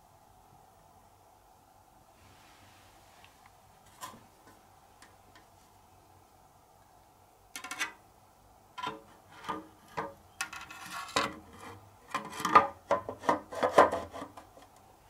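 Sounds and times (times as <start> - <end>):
plastic fans rubbing and knocking: 8.8 - 14.8.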